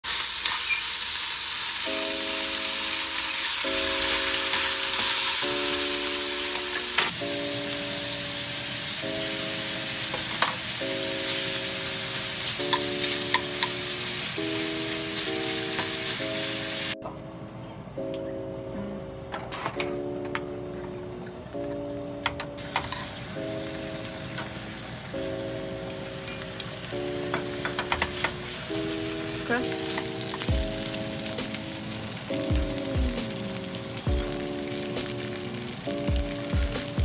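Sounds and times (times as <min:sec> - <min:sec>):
meat sizzling in a pan: 0:00.0 - 0:17.0, 0:22.6 - 0:37.0
metal utensils clicking on pan: 0:06.5 - 0:07.2, 0:10.1 - 0:10.7, 0:12.5 - 0:13.9, 0:21.8 - 0:23.2, 0:26.2 - 0:28.5, 0:29.5 - 0:30.5.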